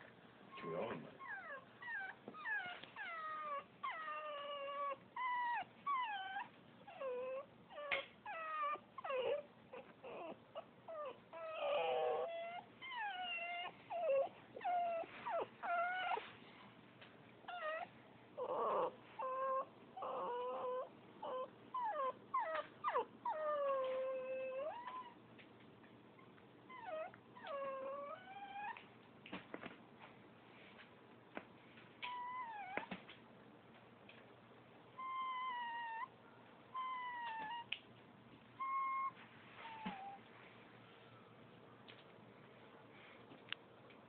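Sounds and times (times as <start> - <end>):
dog whining and whimpering: 0.5 - 16.3, 17.4 - 25.2, 26.2 - 28.9, 32.0 - 33.1, 34.9 - 37.8, 38.6 - 40.3.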